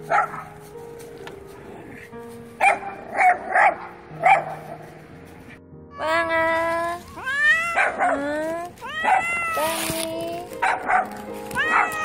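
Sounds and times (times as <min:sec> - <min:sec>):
dog barking: 0:00.0 - 0:00.6, 0:02.6 - 0:05.0, 0:07.7 - 0:08.3, 0:09.0 - 0:09.4, 0:10.6 - 0:12.0.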